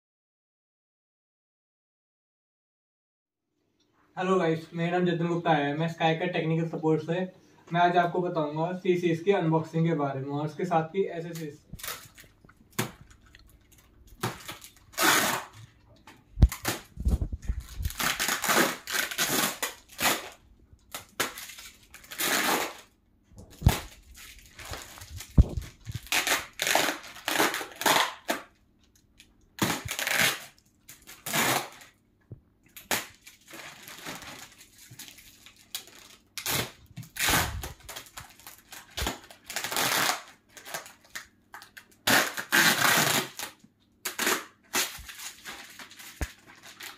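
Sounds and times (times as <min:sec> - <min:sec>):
plastic wrap crinkling and tearing: 0:11.2 - 0:15.8, 0:16.4 - 0:28.6, 0:29.2 - 0:32.0, 0:32.7 - 0:46.9.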